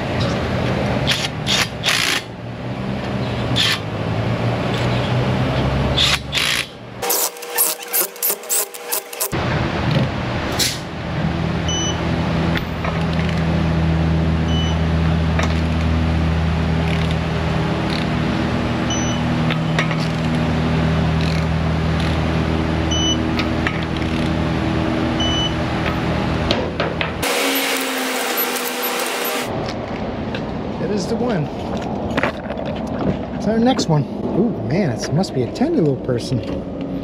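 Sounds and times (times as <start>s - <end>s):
low mechanical hum: 0.0s - 37.0s.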